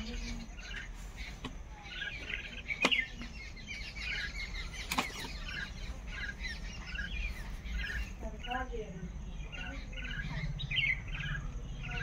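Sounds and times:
flock of birds chattering: 0.0 - 12.0.

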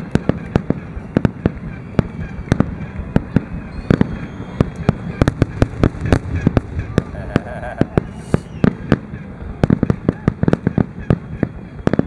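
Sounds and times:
firework bangs: 0.0 - 12.0
low rumble: 4.9 - 8.9.

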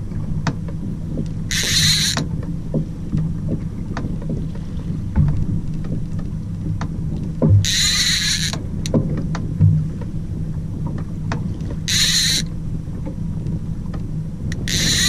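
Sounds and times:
fishing reel drag buzzing: 1.5 - 2.2, 7.6 - 8.6, 11.9 - 12.5, 14.6 - 15.0
small knocks: 5.1 - 10.1
boat engine idling: 14.3 - 15.0.

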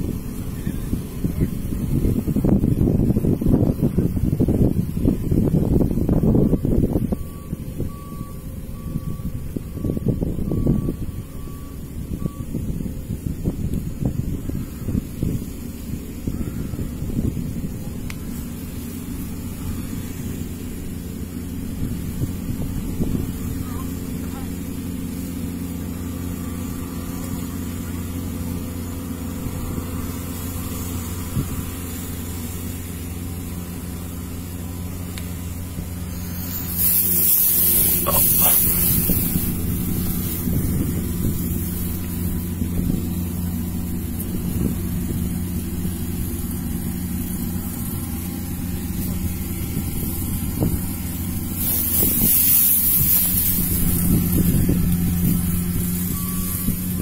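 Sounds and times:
combine harvester engine running: 0.0 - 57.0
rushing hiss: 35.6 - 57.0.

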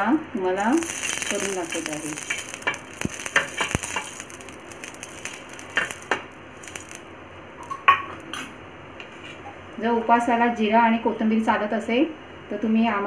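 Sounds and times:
oil sizzling on griddle: 0.0 - 8.4.

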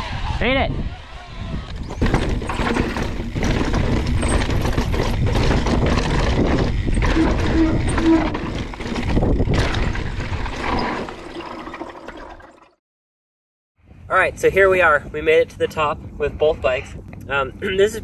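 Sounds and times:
wind rumbling on microphone: 0.0 - 11.2, 13.8 - 18.0
bike rattling on rocky ground: 1.7 - 11.8.

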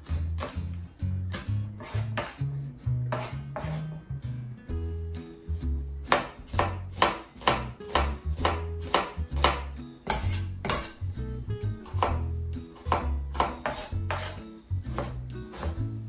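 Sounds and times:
knife dicing on wooden board: 1.3 - 2.4, 3.1 - 3.8, 6.0 - 11.0, 12.8 - 15.8.

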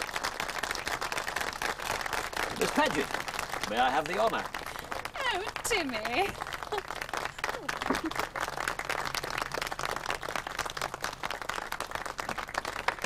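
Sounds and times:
crowd applauding: 0.0 - 13.0.

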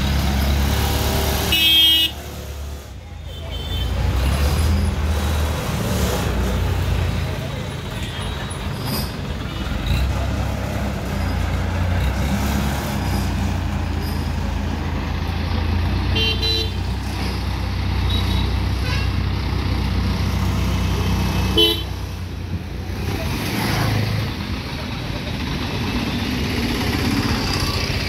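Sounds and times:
vehicle horn toots: 1.5 - 2.2, 16.2 - 16.8, 21.6 - 21.9.

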